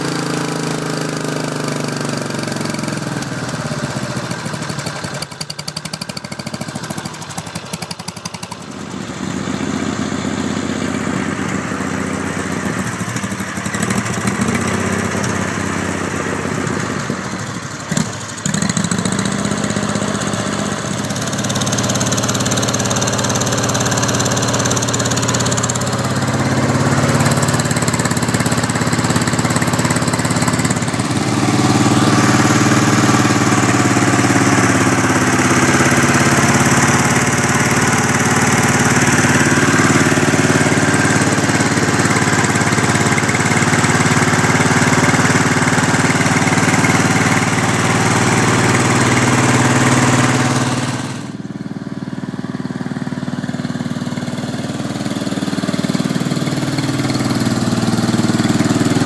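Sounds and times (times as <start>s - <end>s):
lawn tractor engine revving: 0.0s - 59.0s.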